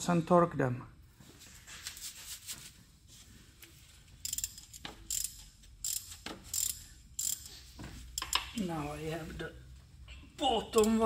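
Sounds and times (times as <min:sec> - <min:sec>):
ratchet wrench clicking: 0:04.2 - 0:08.6.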